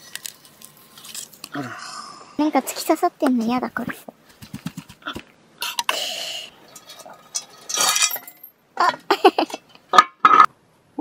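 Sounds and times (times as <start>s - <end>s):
cutlery and cookware clinking: 6.7s - 8.5s.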